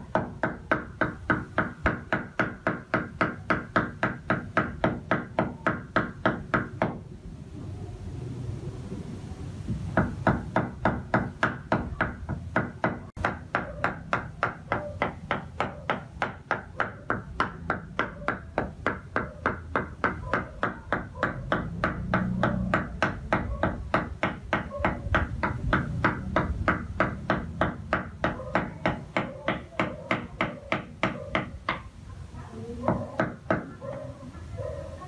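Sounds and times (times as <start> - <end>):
cleaver chopping meat on wood: 0.1 - 7.0, 10.0 - 31.8, 32.9 - 33.7.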